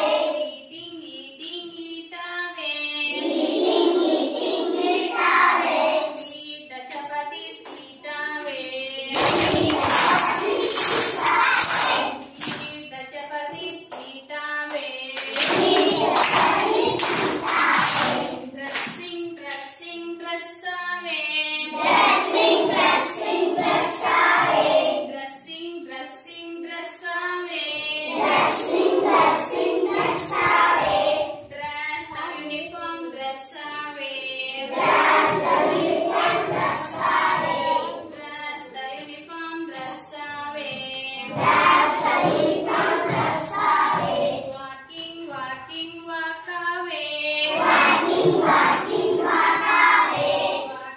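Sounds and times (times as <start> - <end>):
children singing: 0.0 - 0.6, 2.8 - 6.4, 8.4 - 12.8, 15.0 - 19.0, 21.4 - 25.2, 27.4 - 31.5, 32.1 - 44.7, 47.1 - 50.9.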